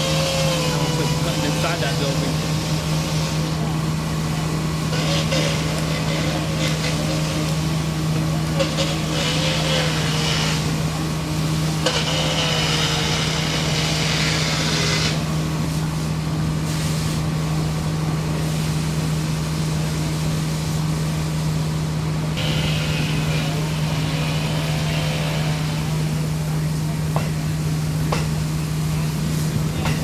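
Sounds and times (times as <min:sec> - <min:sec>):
engine running steadily: 0:00.0 - 0:30.0.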